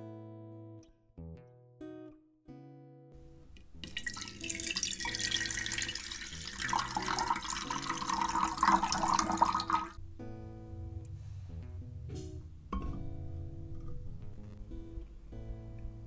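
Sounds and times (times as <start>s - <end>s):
water pouring into metal pot: 3.8s - 10.0s.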